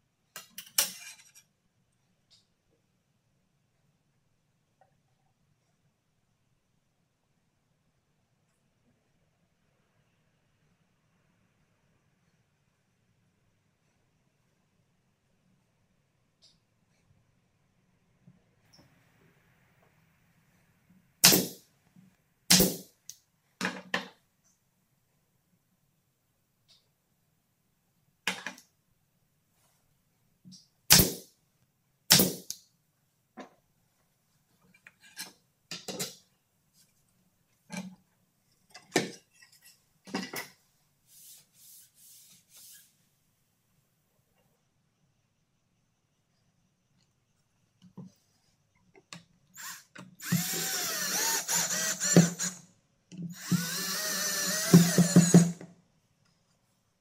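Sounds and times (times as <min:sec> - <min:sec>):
power drill driving screw: 0:49.6 - 0:52.6, 0:53.3 - 0:55.6.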